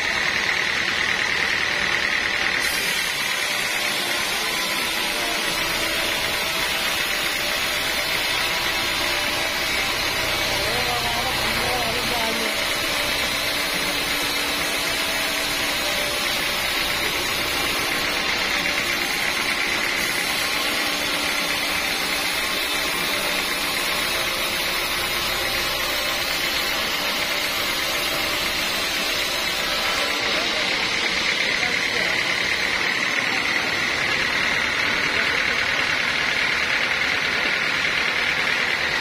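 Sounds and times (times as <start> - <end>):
band saw whining through log: 0.0 - 39.0.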